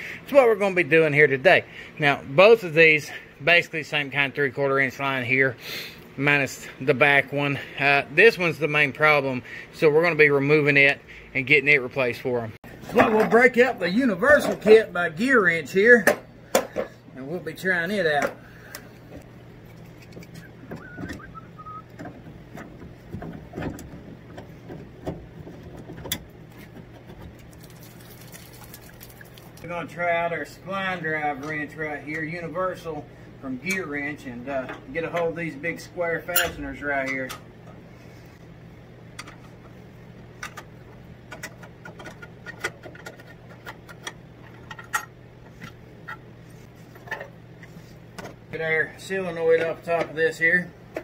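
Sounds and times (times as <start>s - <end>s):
low machine hum: 0.0s - 51.0s.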